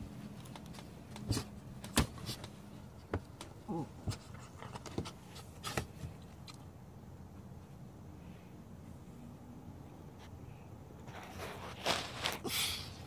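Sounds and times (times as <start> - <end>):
scratches and rustles on blankets: 11.0 - 13.0.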